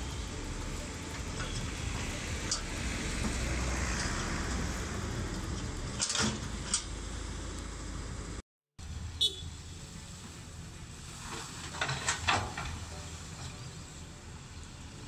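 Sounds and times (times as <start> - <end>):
diesel engine rumbling: 0.0 - 15.0.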